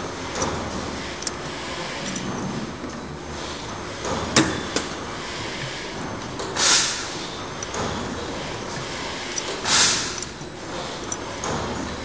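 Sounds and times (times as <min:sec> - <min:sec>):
machine whirring: 0:00.0 - 0:12.0
sharp metallic clicks: 0:08.6 - 0:12.0.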